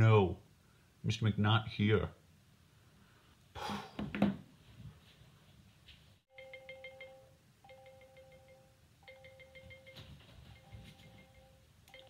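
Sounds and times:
marimba phone ringtone: 6.3s - 12.0s
rustling: 9.3s - 11.6s.

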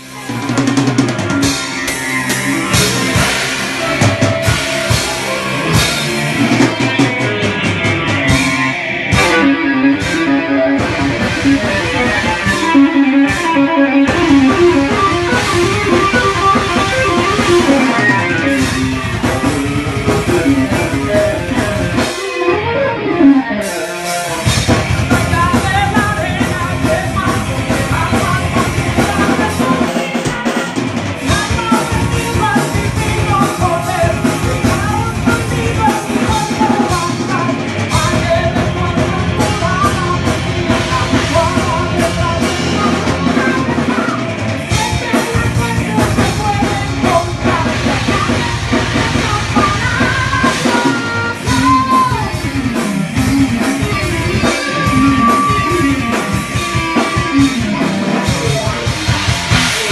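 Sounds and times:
heavy metal band playing: 0.0s - 59.9s.

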